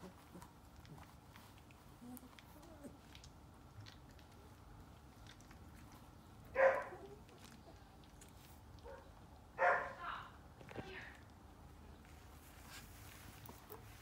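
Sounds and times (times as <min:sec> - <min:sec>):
puppy yipping: 0:06.6 - 0:07.6.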